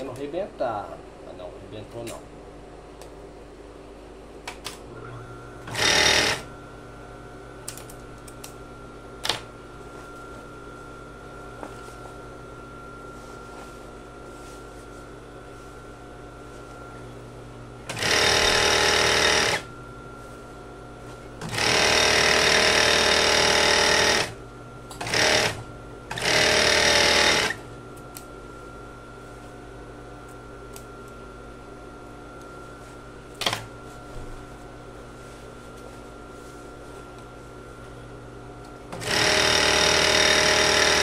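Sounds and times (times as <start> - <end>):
steady machine hum: 0.0 - 41.0
overlock machine stitching: 5.7 - 6.5, 17.9 - 19.7, 21.4 - 24.4, 25.0 - 27.6, 39.0 - 41.0.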